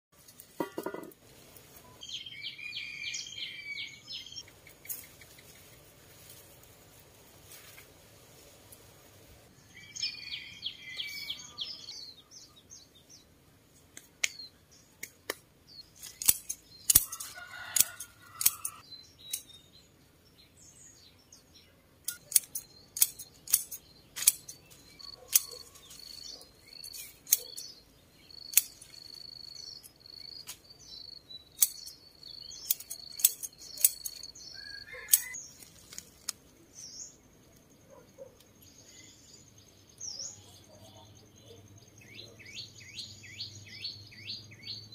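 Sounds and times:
birds chirping: 1.7s - 6.0s, 9.5s - 13.5s, 14.2s - 44.9s
pruning shears snipping: 13.9s - 14.4s, 15.0s - 19.6s, 22.1s - 27.7s, 28.3s - 30.8s, 31.5s - 36.5s.

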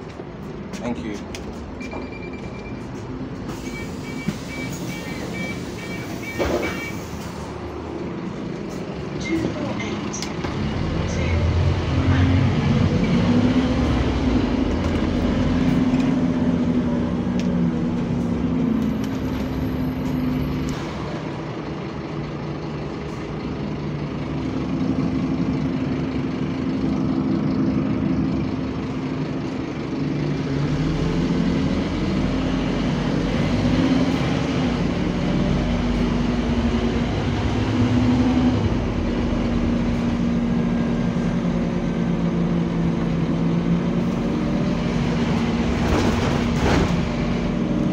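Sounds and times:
bus diesel engine humming: 0.0s - 47.9s.

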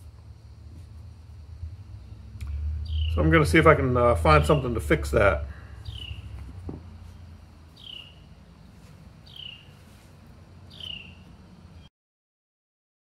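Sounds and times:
low background hum: 0.0s - 11.9s
bird whistling calls: 2.8s - 3.2s, 5.7s - 6.4s, 7.8s - 8.3s, 9.3s - 9.8s, 10.7s - 11.9s
light knock: 6.4s - 6.9s.

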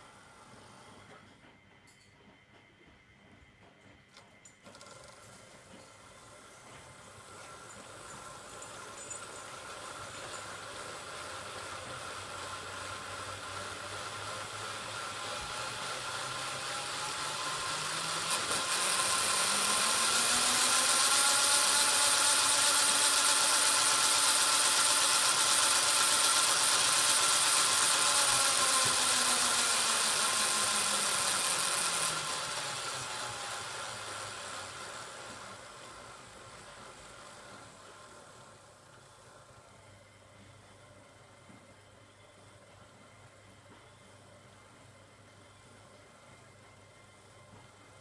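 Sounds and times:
model locomotive motor whine: 0.0s - 48.0s.

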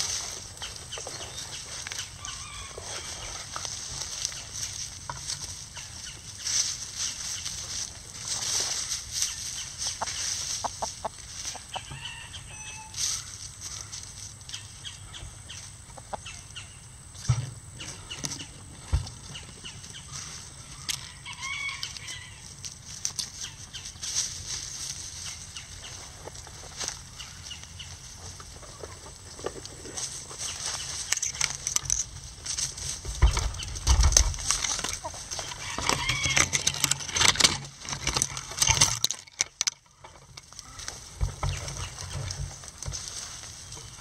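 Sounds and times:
chickens scratching in leaves: 0.0s - 17.2s, 17.8s - 39.2s, 39.8s - 44.0s
soft chicken clucks: 5.5s - 16.9s.

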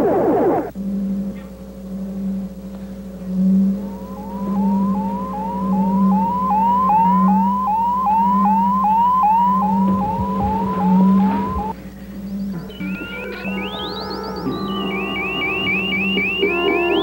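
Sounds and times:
low electronic hum: 0.0s - 17.0s
rising electronic chirp: 3.4s - 11.8s, 12.4s - 17.0s.

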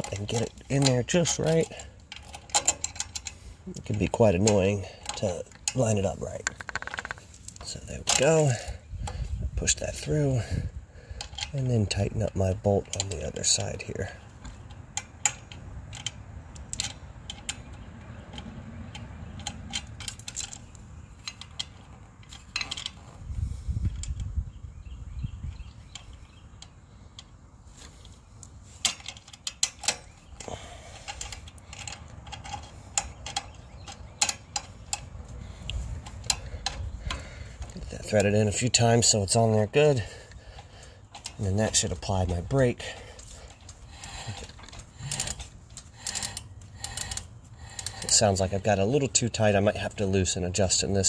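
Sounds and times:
metallic clicks and taps: 6.4s - 8.2s, 14.4s - 23.0s, 31.1s - 38.3s.

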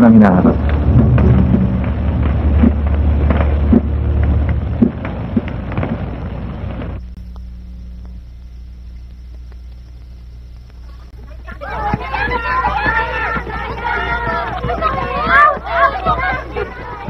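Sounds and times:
heavy low rumble: 0.0s - 11.5s
low steady hum: 0.0s - 17.0s
sharp bangs: 0.2s - 7.1s.

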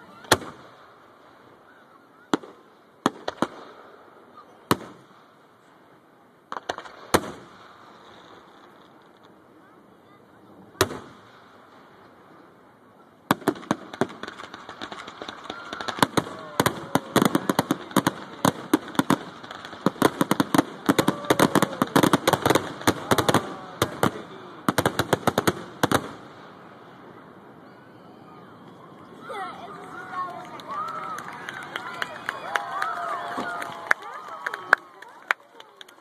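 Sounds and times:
fireworks exploding: 0.0s - 27.6s.

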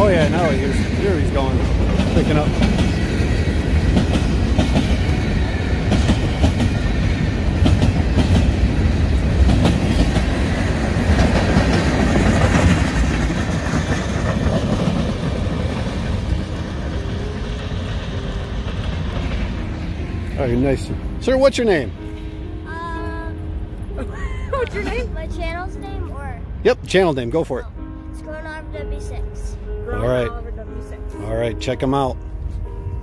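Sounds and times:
wheels clicking over rail joints: 0.0s - 21.9s
freight train rumbling past: 0.0s - 33.0s.

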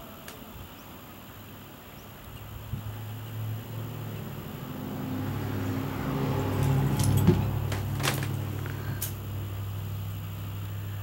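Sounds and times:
sharp clicks and jingles: 6.4s - 9.2s.

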